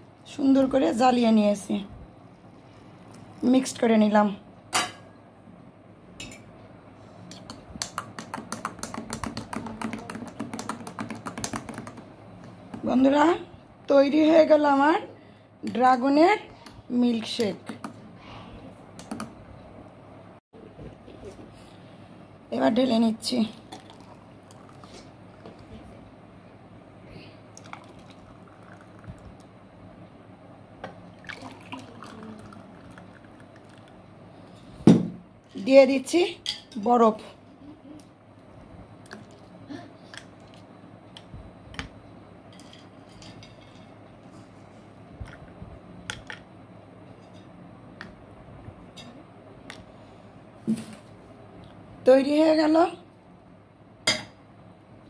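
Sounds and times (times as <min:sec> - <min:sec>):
thick liquid pouring: 0:27.6 - 0:29.2, 0:31.2 - 0:33.9.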